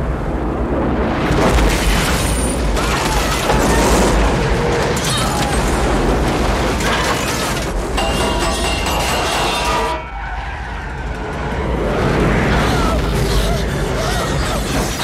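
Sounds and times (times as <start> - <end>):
debris crashing and clattering: 1.4 - 10.1.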